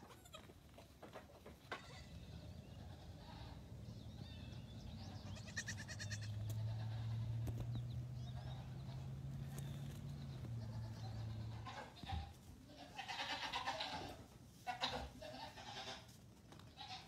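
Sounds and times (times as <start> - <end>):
baby goats bleating: 0.0 - 0.6, 1.7 - 3.7, 5.1 - 7.5, 10.5 - 17.0.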